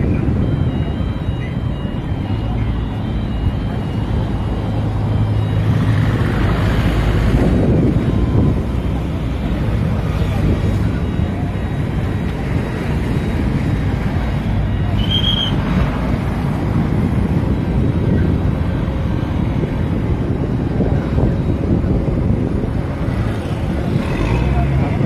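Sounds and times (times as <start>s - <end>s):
wind buffeting microphone: 0.0s - 25.0s
brief high tone: 14.5s - 15.7s.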